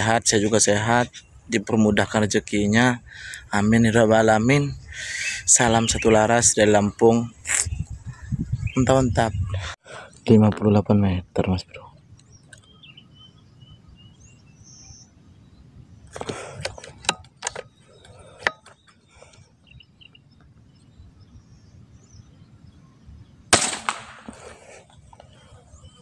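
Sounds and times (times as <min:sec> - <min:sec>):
air rifle shot: 0:23.5 - 0:24.4.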